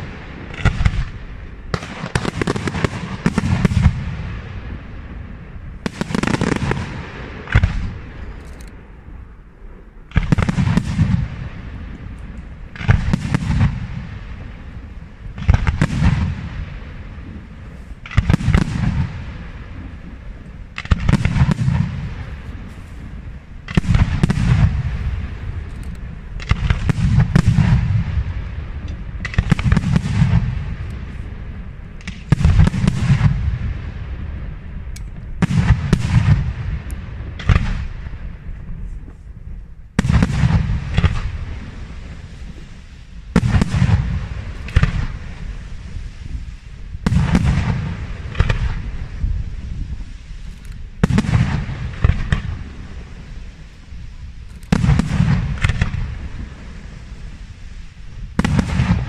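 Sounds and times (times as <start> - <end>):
low rumbling echo: 0.0 - 59.0.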